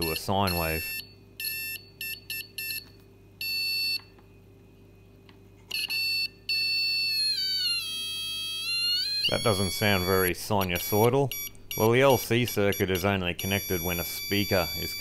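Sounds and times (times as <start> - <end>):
buzzy piezo beeps: 8.4 - 15.0.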